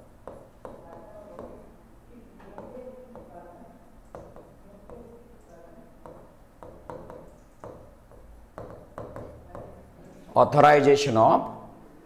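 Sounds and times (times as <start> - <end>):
taps on touchscreen glass: 0.2 - 1.6, 2.4 - 3.4, 4.1 - 5.1, 6.0 - 9.8.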